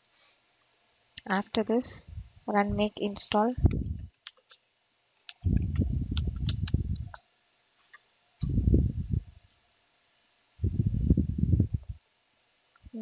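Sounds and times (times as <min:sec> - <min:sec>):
low muffled rumble: 0:01.9 - 0:02.9, 0:03.5 - 0:04.1, 0:05.4 - 0:07.2, 0:08.4 - 0:09.4, 0:10.6 - 0:12.0.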